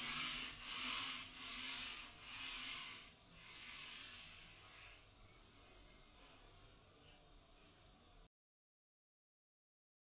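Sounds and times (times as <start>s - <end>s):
sandpaper rubbing on wood: 0.0s - 5.0s.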